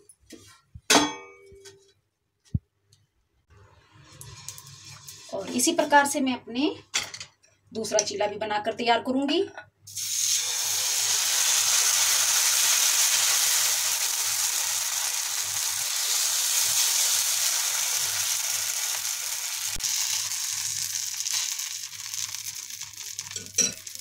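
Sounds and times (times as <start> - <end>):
batter sizzling on griddle: 9.9 - 24.0.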